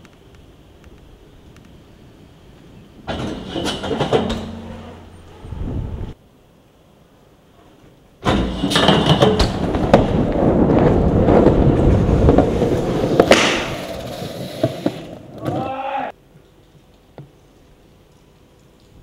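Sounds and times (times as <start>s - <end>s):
tyres rolling on concrete: 3.0s - 5.5s, 8.2s - 16.1s
metal scraping on handrail: 3.1s - 5.4s
bike landing hit: 8.2s - 10.3s, 13.1s - 14.1s.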